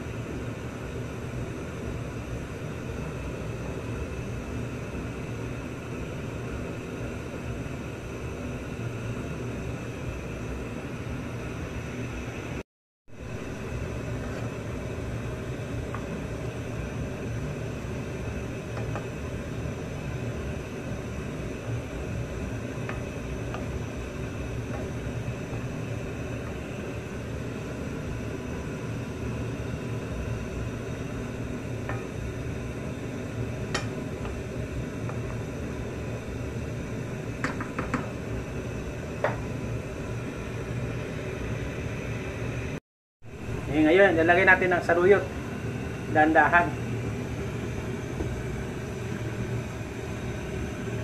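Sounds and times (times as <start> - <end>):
stove hum and hiss: 0.0 - 51.0.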